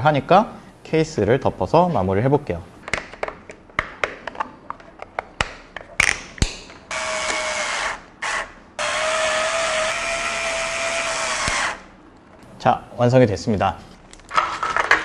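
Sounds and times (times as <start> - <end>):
electric screwdriver running: 6.9 - 11.8.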